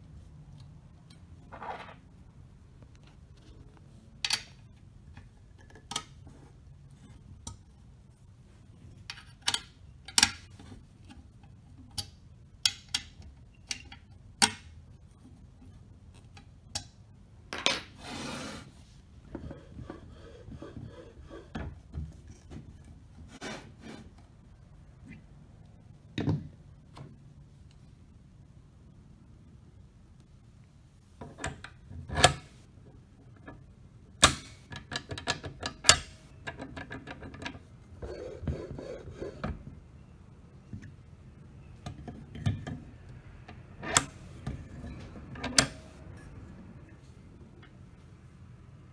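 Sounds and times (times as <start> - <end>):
long rubbing scrape: 18.0 - 21.6.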